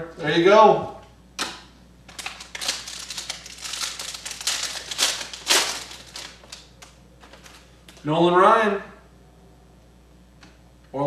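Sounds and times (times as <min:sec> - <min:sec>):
plastic wrapper crinkling and tearing: 0:02.1 - 0:08.0.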